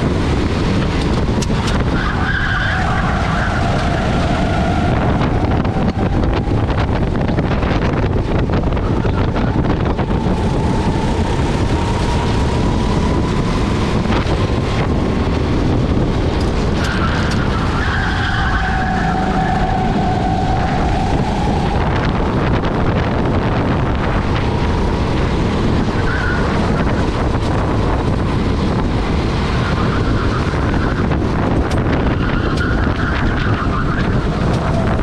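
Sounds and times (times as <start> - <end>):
go-kart engine racing: 0.0 - 35.0
wind rush on microphone: 0.0 - 35.0
higher steady tones: 3.5 - 16.3.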